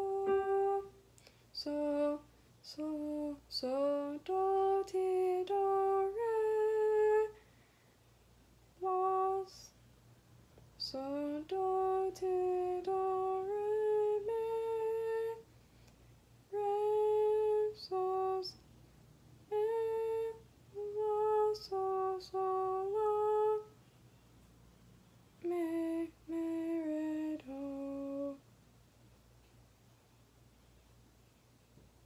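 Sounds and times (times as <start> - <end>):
woman singing unaccompanied: 0.0 - 7.4, 8.7 - 9.8, 10.8 - 15.5, 16.4 - 18.6, 19.4 - 23.8, 25.4 - 28.5.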